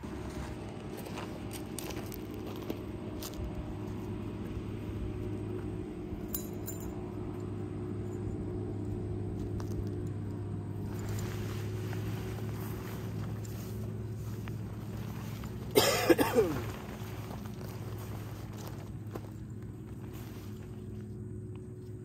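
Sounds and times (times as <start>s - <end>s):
low hum: 0.0s - 22.0s
tent fabric rustling: 10.8s - 22.0s.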